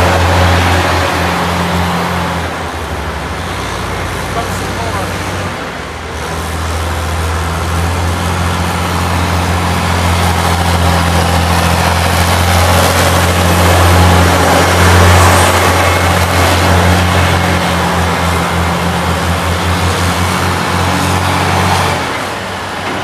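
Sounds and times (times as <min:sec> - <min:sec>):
heavy vehicle engine drone: 0:00.0 - 0:23.0
road noise: 0:00.0 - 0:23.0.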